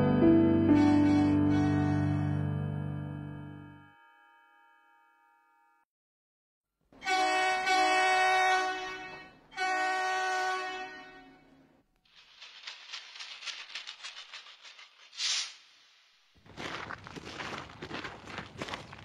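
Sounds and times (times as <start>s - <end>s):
long horn blasts: 0.7s - 2.4s, 7.0s - 11.5s
fast rattling clatter: 12.1s - 15.2s.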